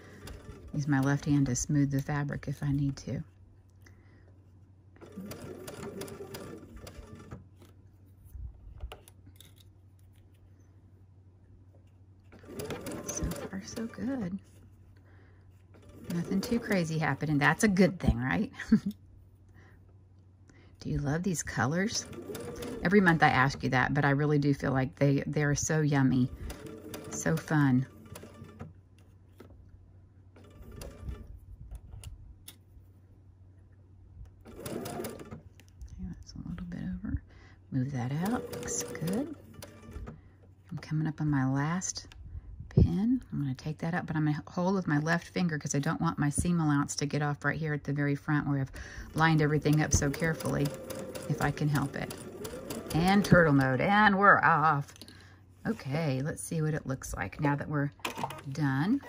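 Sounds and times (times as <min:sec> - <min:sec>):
sewing machine stitching: 0:00.0 - 0:02.3, 0:05.0 - 0:07.7, 0:12.3 - 0:14.4, 0:15.7 - 0:18.3, 0:21.7 - 0:23.9, 0:25.8 - 0:28.8, 0:30.4 - 0:31.3, 0:34.4 - 0:35.5, 0:37.9 - 0:40.2, 0:48.7 - 0:54.1, 0:58.0 - 0:59.0
low steady hum: 0:00.0 - 0:59.0.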